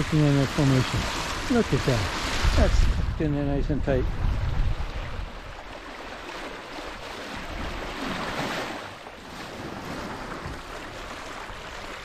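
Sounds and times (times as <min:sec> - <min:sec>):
wind buffeting microphone: 0:00.0 - 0:08.4
water rushing along boat bow: 0:00.0 - 0:12.0.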